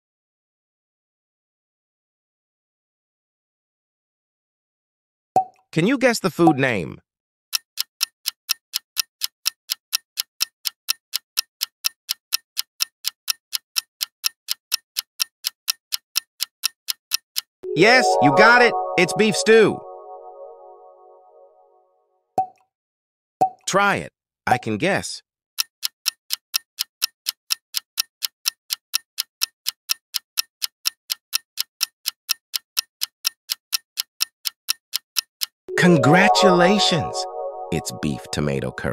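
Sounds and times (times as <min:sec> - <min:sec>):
clock-like timer ticks: 0:07.5 - 0:19.0, 0:25.6 - 0:36.5.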